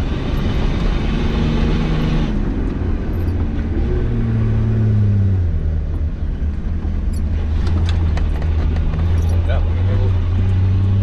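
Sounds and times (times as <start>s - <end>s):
knocks and rattles: 6.7s - 10.6s.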